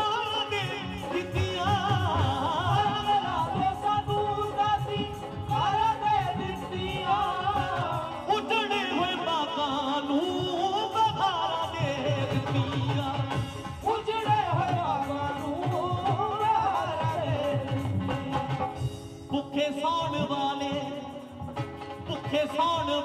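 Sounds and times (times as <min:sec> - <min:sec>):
devotional song over loudspeakers: 0:00.0 - 0:23.0
dhol and tabla beat: 0:00.0 - 0:23.0
keyboards: 0:00.0 - 0:23.0.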